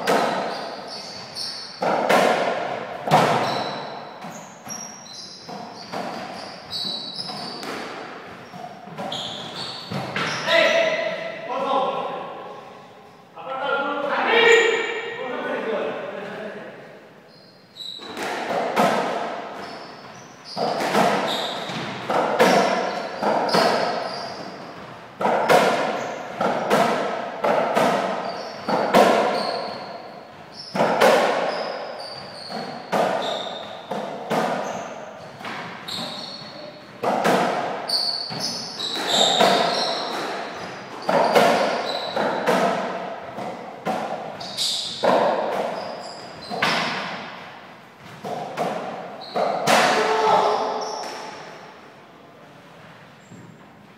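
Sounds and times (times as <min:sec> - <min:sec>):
shoes squeaking on court: 0:00.0 - 0:02.2, 0:03.1 - 0:11.0, 0:17.3 - 0:18.3, 0:19.5 - 0:26.7, 0:28.0 - 0:37.0, 0:37.7 - 0:42.6, 0:44.2 - 0:47.4, 0:48.0 - 0:49.7, 0:50.4 - 0:51.7
racquet hitting ball: 0:00.0 - 0:11.5, 0:17.9 - 0:51.8.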